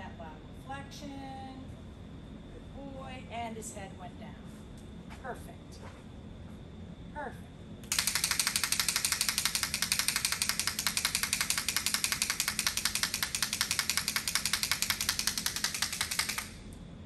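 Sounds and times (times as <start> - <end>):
noisemaker rattling clicks: 7.8 - 16.7.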